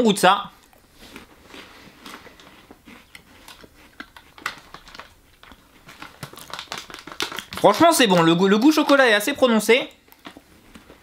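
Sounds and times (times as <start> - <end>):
person chewing crunchy cereal: 0.5 - 9.0.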